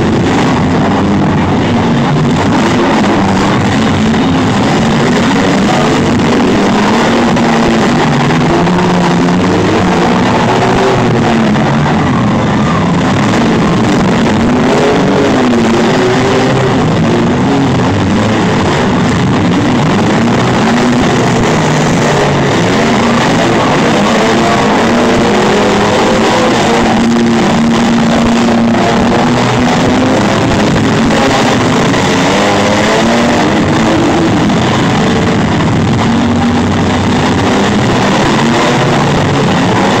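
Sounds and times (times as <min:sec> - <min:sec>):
engines revving: 0:00.0 - 0:40.0.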